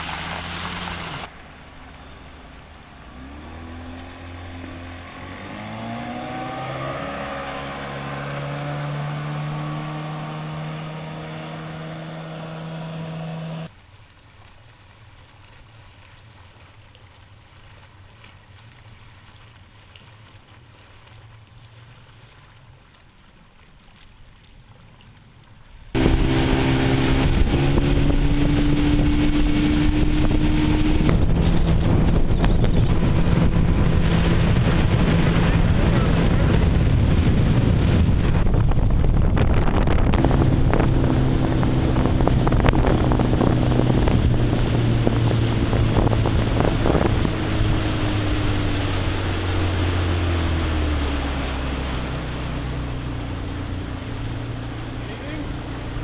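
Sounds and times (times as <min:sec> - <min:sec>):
outboard motor running: 0:00.0 - 0:56.0
rushing water: 0:00.0 - 0:56.0
heavy wind: 0:26.0 - 0:56.0.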